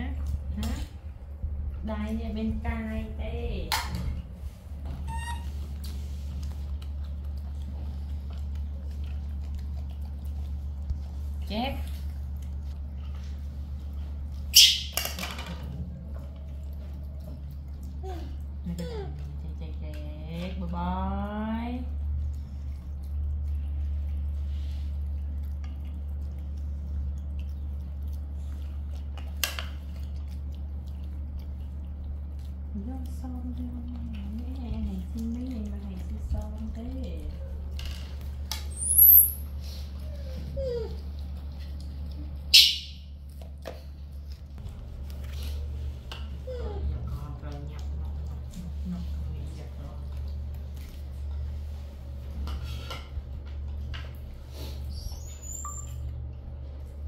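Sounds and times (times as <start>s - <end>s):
steady low hum: 0.0s - 57.0s
chewing and mouth clicks: 5.2s - 20.7s, 21.9s - 57.0s.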